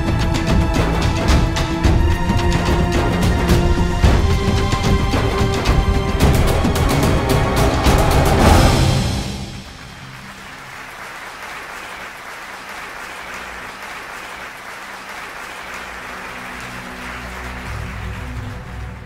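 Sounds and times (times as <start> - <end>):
loud music: 0.0 - 10.6
audience applauding: 0.0 - 19.0.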